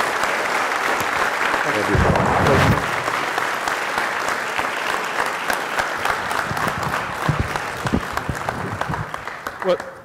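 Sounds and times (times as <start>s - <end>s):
crowd applauding: 0.0s - 10.0s.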